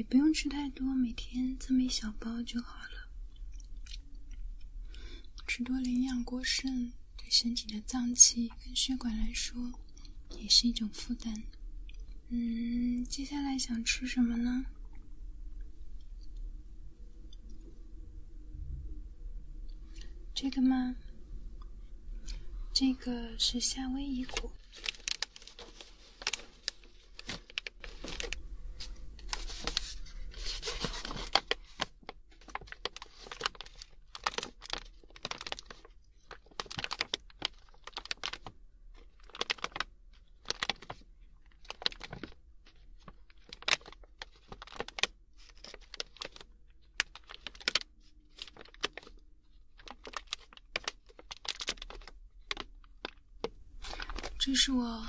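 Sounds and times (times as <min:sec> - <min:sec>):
snack bag crinkling: 0:24.2 - 0:54.6.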